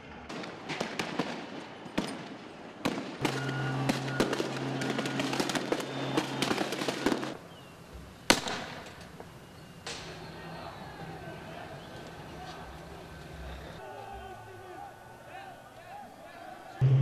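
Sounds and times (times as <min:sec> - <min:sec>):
sharp bangs and pops: 0:00.2 - 0:07.4, 0:08.3 - 0:10.2.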